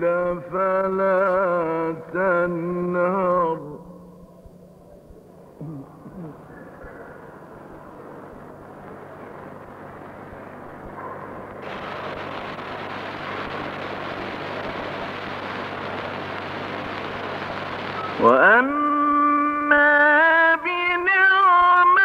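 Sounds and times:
person reciting: 0.0 - 4.2, 5.6 - 6.6, 18.0 - 22.0
low recording hum: 0.0 - 22.0.

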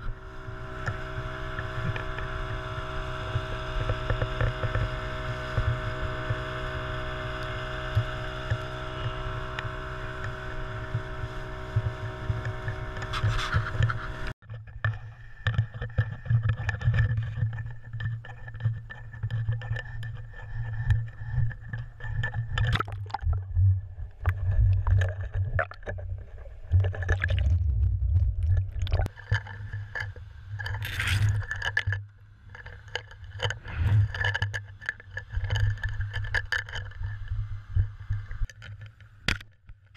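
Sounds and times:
outboard motor running: 0.0 - 39.9
knocks and scrapes on boat: 7.6 - 22.8, 28.2 - 39.5
water splashing: 22.5 - 31.9.

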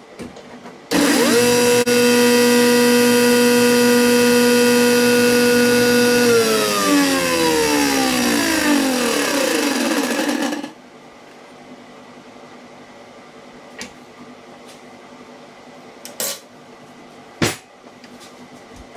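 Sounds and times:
table saw running and coasting down: 0.9 - 10.8.

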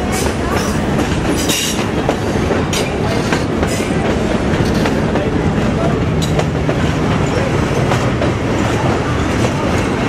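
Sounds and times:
train wheels rumbling: 0.0 - 10.0
sharp clicks and clacks: 6.2 - 10.0.

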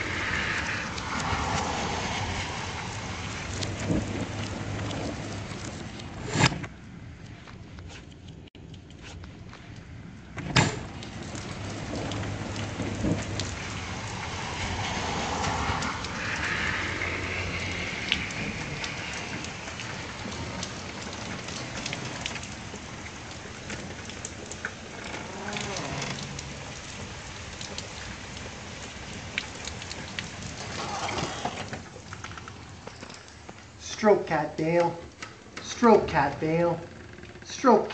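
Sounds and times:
steady rain falling: 0.0 - 37.9.

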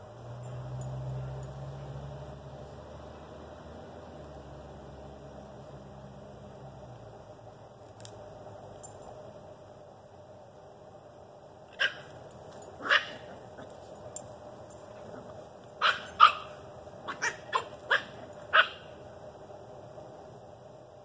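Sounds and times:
dog barking: 11.8 - 12.1, 12.8 - 13.4, 15.8 - 18.9.

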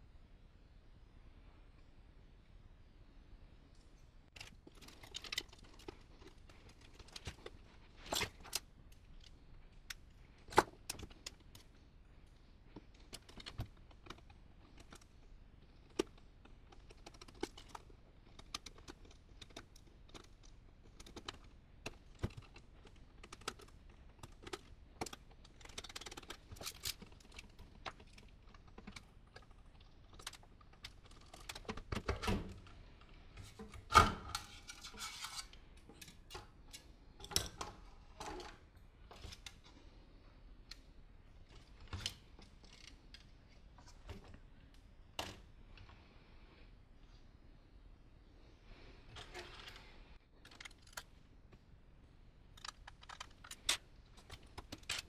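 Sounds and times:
tools and screws clicking and rustling: 4.3 - 11.8, 12.8 - 39.8, 41.4 - 44.4, 49.2 - 51.2, 52.5 - 55.0.

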